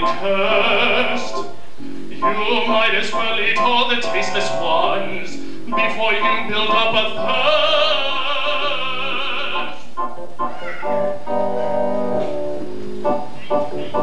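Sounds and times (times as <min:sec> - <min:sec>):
opera singing voice: 0:00.0 - 0:10.0
accompaniment chords: 0:00.0 - 0:14.0.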